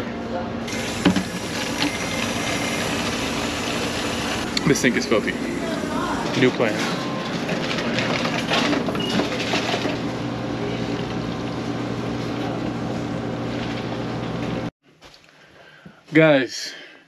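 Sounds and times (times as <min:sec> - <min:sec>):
machine hum: 0:00.0 - 0:14.7
water rushing into jug: 0:00.7 - 0:06.4.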